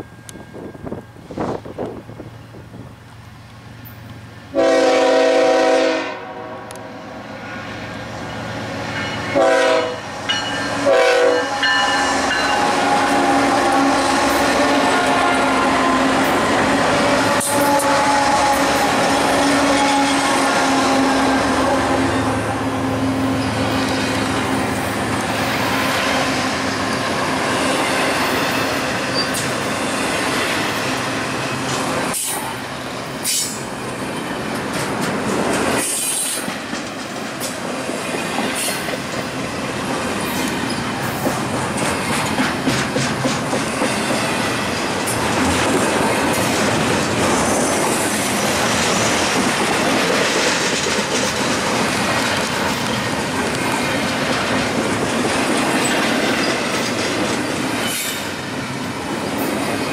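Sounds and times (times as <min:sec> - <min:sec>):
freight train wheels rumbling on rail: 0:00.0 - 0:59.9
wheels clicking over rail joints: 0:33.2 - 0:58.2.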